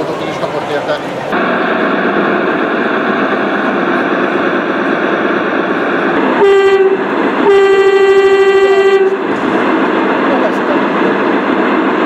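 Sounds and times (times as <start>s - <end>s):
chatter of crowd in hall: 0.0s - 1.4s
model locomotive horn blasts: 6.2s - 9.3s.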